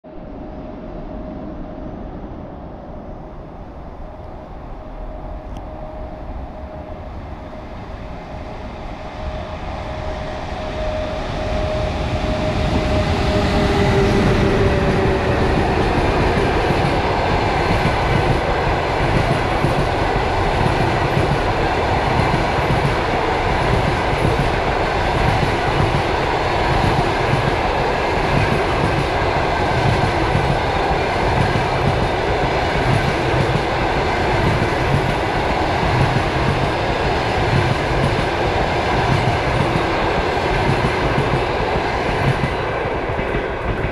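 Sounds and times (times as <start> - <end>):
electric locomotive hum: 0.1 - 43.9
train coaches rumbling past: 0.1 - 43.9
train wheel clatter: 11.5 - 43.9.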